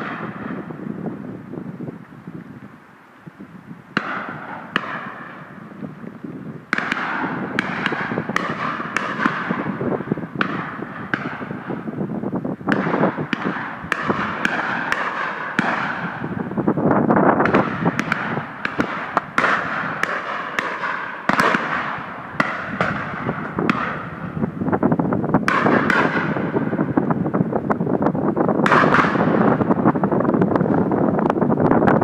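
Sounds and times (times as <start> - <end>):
shotguns firing with echoes: 0.0 - 0.8, 4.0 - 5.7, 6.7 - 11.9, 12.7 - 16.6, 17.4 - 24.6, 25.4 - 27.0, 28.6 - 30.0.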